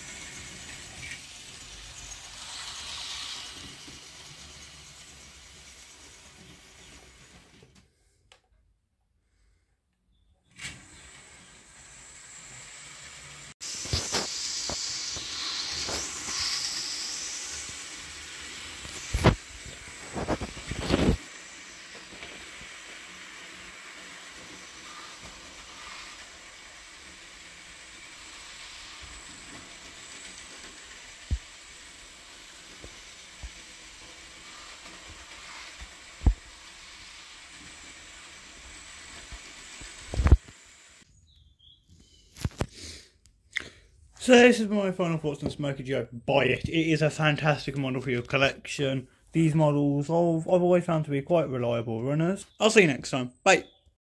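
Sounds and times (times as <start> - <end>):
wheel clicks on track: 0.0 - 7.6
hiss: 0.0 - 7.7, 10.6 - 41.1, 42.0 - 44.4
model train running: 0.0 - 7.8, 10.6 - 41.1.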